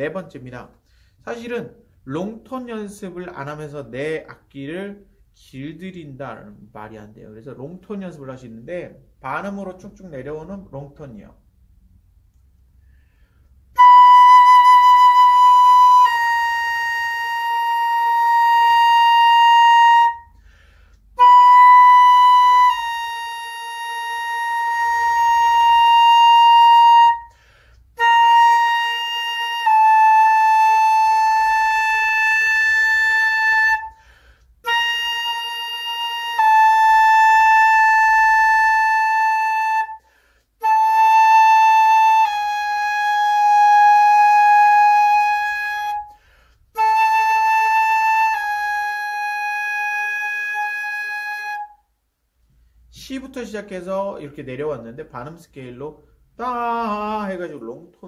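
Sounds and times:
flute playing long tones: 12.8 - 52.0.

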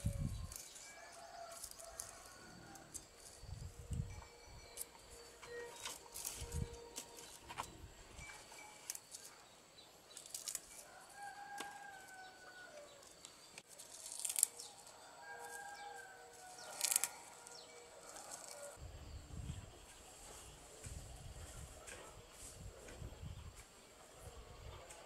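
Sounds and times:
rooster crowing: 0.0 - 3.0, 10.8 - 13.1, 14.6 - 18.8.

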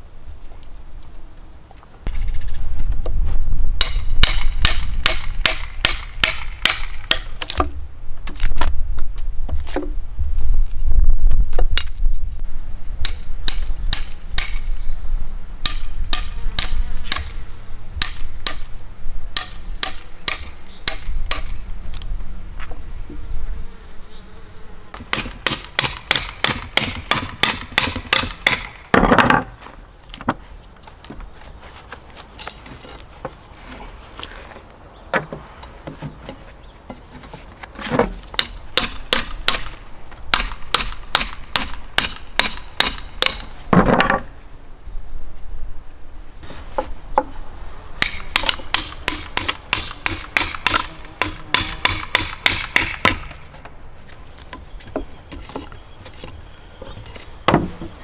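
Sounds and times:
hammer striking steel chisel: 3.8 - 7.4, 11.8 - 12.2, 13.0 - 14.7, 15.6 - 17.4, 18.0 - 18.8, 19.4 - 21.6, 25.0 - 28.9, 38.4 - 43.5, 48.0 - 53.4
insects buzzing: 21.6 - 26.3.

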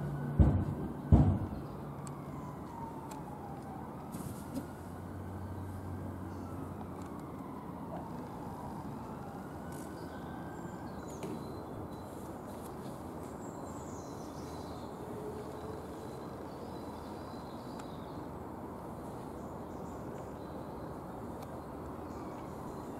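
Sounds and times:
low outdoor background noise: 0.0 - 22.9
small birds chirping: 9.7 - 22.9.

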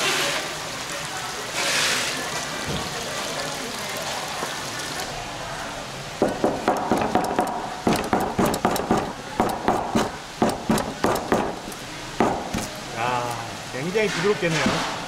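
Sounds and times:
knife chopping on cutting board: 6.2 - 12.8.

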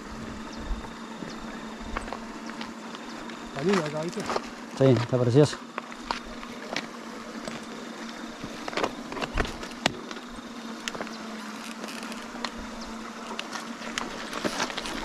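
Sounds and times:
steady low hum: 0.0 - 15.0
footsteps on rocky track: 1.8 - 11.2, 13.4 - 15.0.

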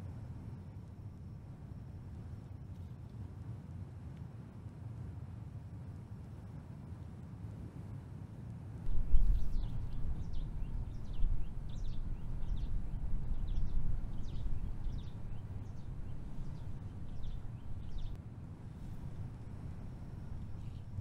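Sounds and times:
small bird chirping: 8.9 - 18.2.

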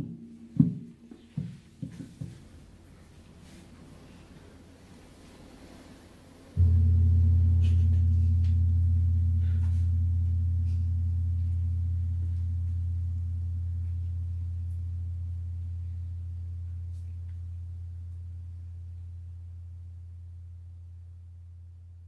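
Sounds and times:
gong ringing: 6.6 - 18.5.

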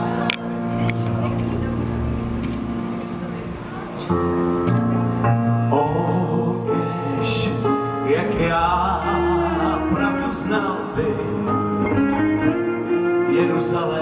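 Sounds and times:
man singing long held notes: 5.6 - 11.7, 13.1 - 14.0
live rock band: 7.8 - 14.0.

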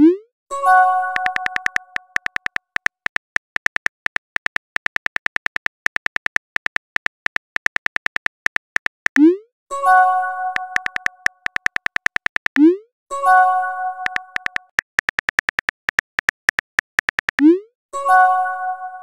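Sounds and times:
phone keyboard typing clicks: 1.1 - 9.3, 10.5 - 12.7, 14.0 - 17.5.

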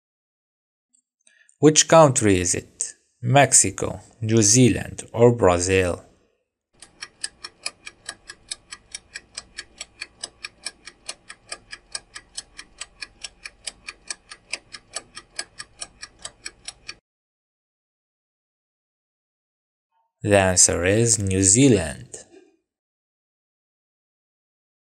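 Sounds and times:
fast clock-like ticking: 6.8 - 17.0.

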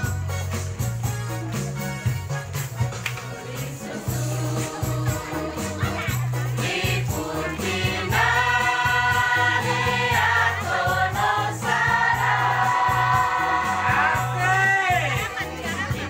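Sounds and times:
women's choir singing: 3.3 - 14.4.

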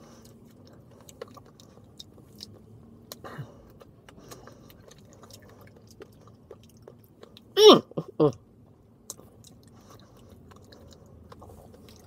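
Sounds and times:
person chewing raspberries: 0.0 - 12.0.

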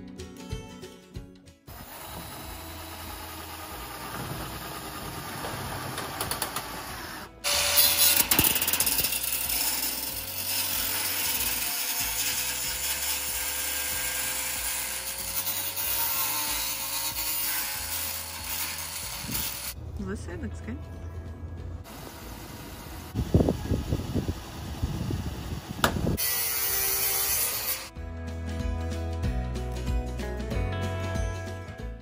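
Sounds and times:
angle grinder cutting metal: 1.7 - 19.8, 26.1 - 27.9.

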